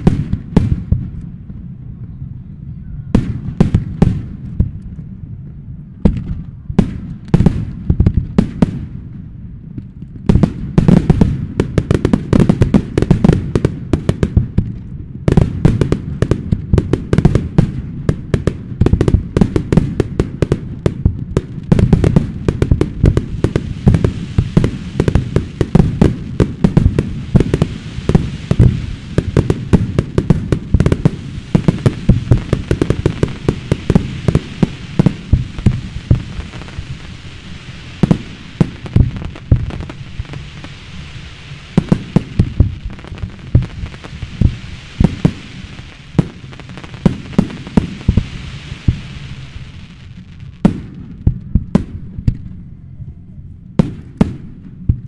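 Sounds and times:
high-pitched firework hiss: 15.3 - 50.6.

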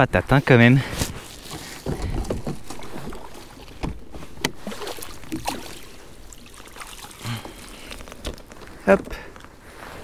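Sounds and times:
light water noise: 1.2 - 9.8
knocks and clicks on kayak: 1.5 - 5.6.

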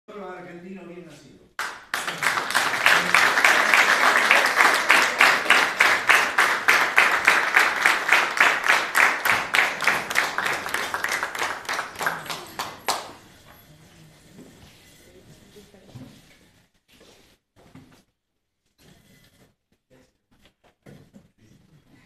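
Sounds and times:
diners applauding: 1.6 - 13.4.

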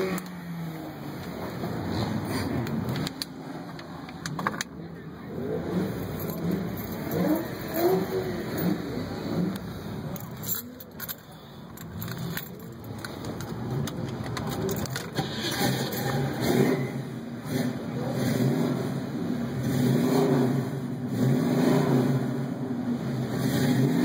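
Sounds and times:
car engine running: 0.0 - 21.0
keys jangling: 6.1 - 8.8, 10.1 - 16.3.

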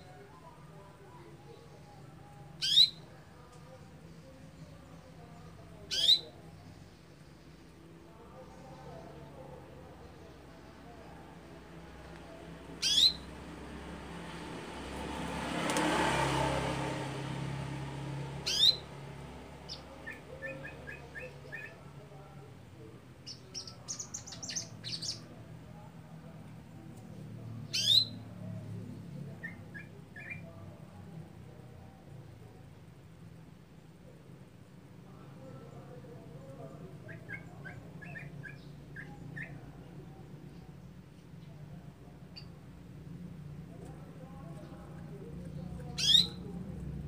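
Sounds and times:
canary calling: 2.6 - 3.1, 5.9 - 6.4, 12.7 - 13.4, 18.4 - 18.9, 19.7 - 21.8, 23.2 - 25.3, 27.6 - 28.2, 29.4 - 30.6, 37.0 - 39.6, 45.5 - 46.5
canary twittering: 2.6 - 3.1, 5.9 - 6.3, 12.7 - 13.4, 18.4 - 18.9, 19.7 - 21.8, 23.2 - 25.2, 27.6 - 28.2, 45.5 - 46.5.

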